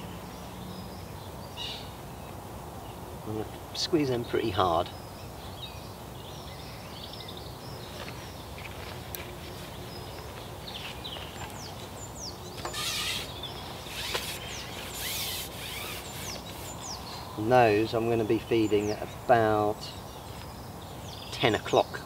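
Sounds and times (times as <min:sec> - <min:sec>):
small birds chirping: 0:00.0 - 0:22.0
rustling: 0:12.6 - 0:17.3.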